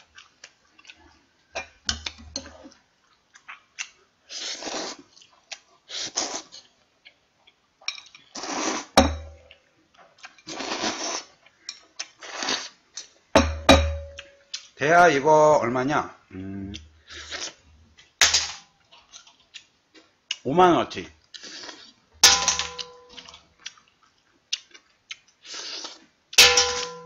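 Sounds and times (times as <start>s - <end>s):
noodles being slurped: 4.3s - 5.2s, 5.8s - 6.7s, 8.2s - 9.0s, 10.5s - 11.4s, 12.0s - 12.8s
loud ringing clink: 26.4s - 27.0s.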